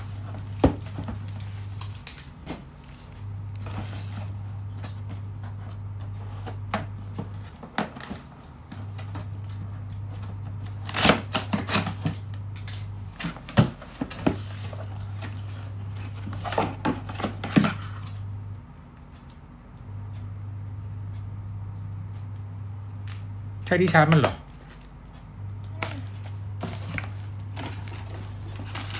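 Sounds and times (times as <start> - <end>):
steady low hum: 0.0 - 28.9
scissors slicing packing tape: 10.6 - 13.4
cardboard flaps scraping: 26.6 - 28.9.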